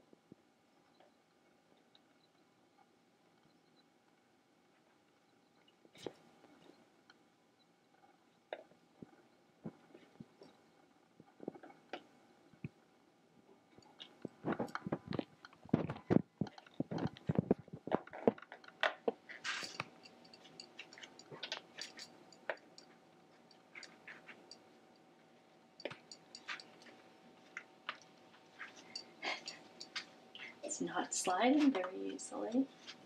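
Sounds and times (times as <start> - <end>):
reed creaking and crackling: 13.7 - 22.6.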